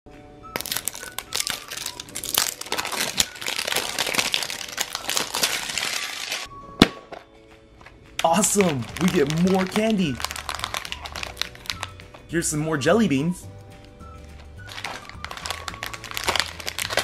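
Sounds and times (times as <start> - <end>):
plastic shrink wrap crinkling: 0.6 - 6.5, 8.2 - 12.4, 13.8 - 17.0.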